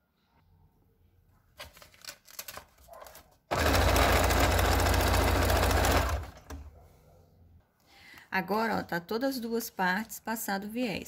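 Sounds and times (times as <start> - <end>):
plastic rustles and clicks: 1.5 - 3.4
sewing machine stitching: 3.5 - 6.7.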